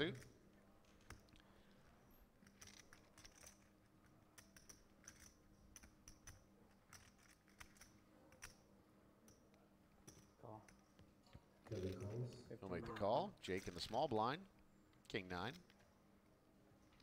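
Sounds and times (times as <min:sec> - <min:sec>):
poker chips clicking: 0:02.4 - 0:08.6.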